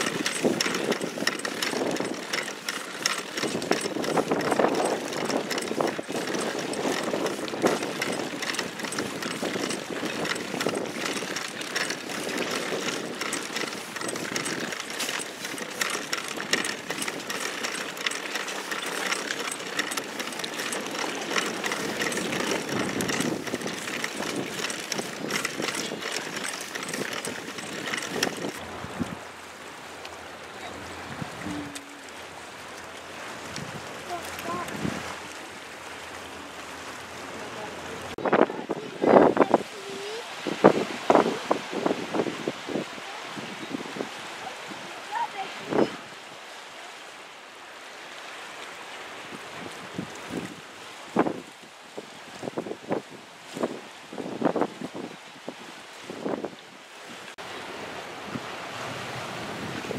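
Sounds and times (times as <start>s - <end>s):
water splashing against hull: 0.0s - 59.9s
wind noise: 3.4s - 18.2s, 20.9s - 29.3s, 30.8s - 31.8s, 33.4s - 35.3s, 38.0s - 46.2s, 49.3s - 59.9s.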